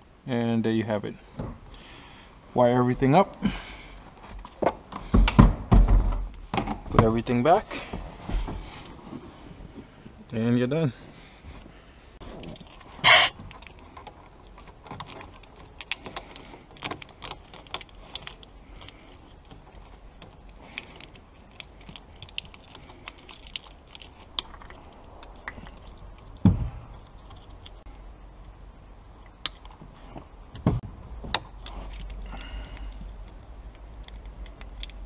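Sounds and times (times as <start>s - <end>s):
clicks and rattles of plastic tubing: 12.3s - 28.0s, 31.3s - 35.0s.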